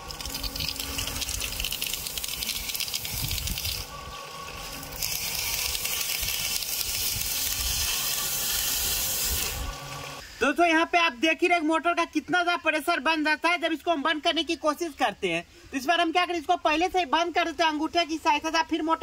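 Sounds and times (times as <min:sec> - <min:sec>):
water hissing and spraying from pipe: 0:00.0 - 0:10.5.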